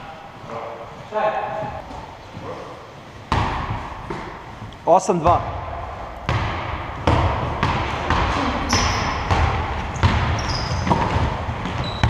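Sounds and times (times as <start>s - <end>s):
sneakers squeaking on floor: 0.0s - 4.7s, 6.2s - 12.0s
basketball dribbling: 3.3s - 4.4s, 5.4s - 12.0s.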